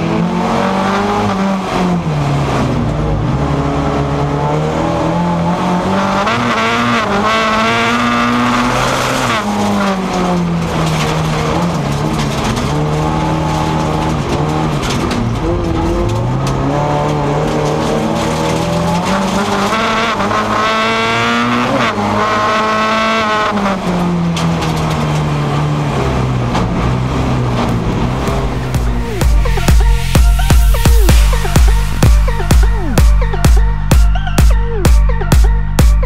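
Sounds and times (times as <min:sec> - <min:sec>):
race car engine revving: 0:00.0 - 0:36.0
car knocking over track: 0:07.8 - 0:33.6.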